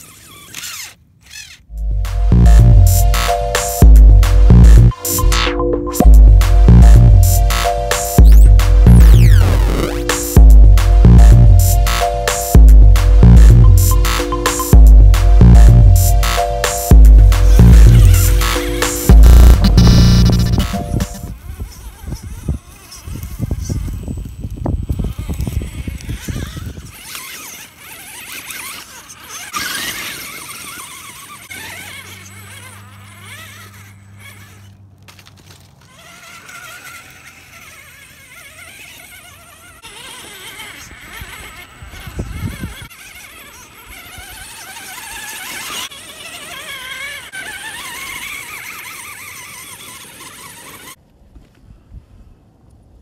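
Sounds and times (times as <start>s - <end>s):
electric motor and gears whining: 0.0s - 51.0s
low rumble: 1.8s - 3.1s, 3.8s - 7.3s.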